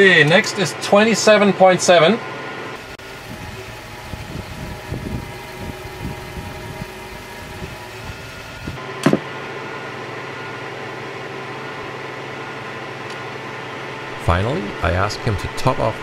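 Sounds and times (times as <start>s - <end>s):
truck engine and pump running: 0.0s - 16.0s
loud clunk: 9.0s - 9.3s.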